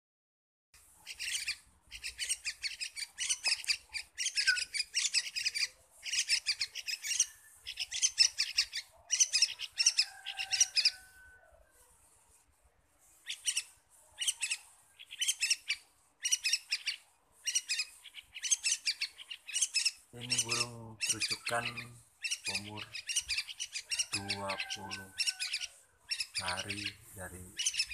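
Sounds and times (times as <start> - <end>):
young birds chirping rapidly: 0.9 - 11.1, 13.2 - 27.9.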